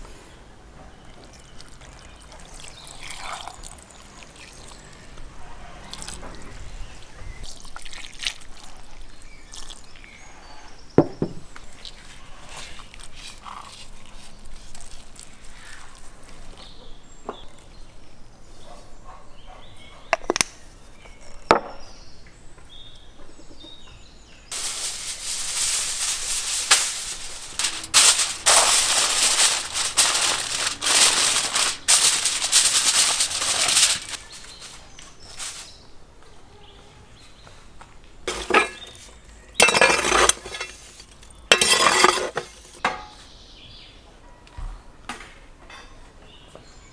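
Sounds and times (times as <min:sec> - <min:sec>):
foil crackling rustle: 0:11.8 - 0:16.4, 0:24.5 - 0:35.8, 0:38.3 - 0:42.8
handling noises: 0:24.5 - 0:35.8, 0:38.2 - 0:43.2.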